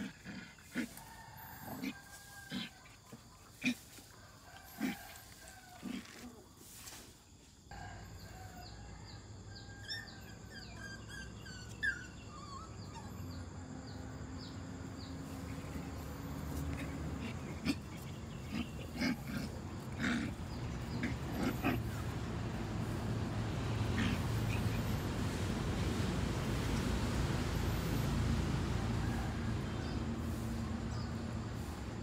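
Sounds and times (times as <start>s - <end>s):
puppies growling: 0.0s - 6.4s, 9.8s - 32.0s
puppy yelping: 9.8s - 13.4s, 15.7s - 22.1s.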